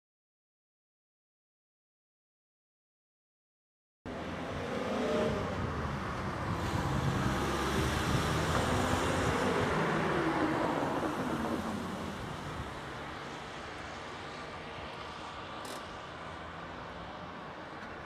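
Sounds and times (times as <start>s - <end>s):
cars driving past: 4.1s - 18.0s.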